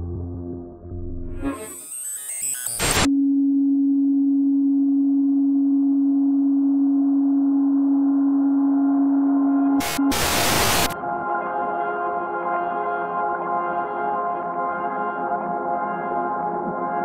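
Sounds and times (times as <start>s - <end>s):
loud low pure tone: 0.0s - 1.8s, 2.8s - 11.4s
noisy electronic sweep: 1.2s - 3.1s, 7.6s - 11.0s.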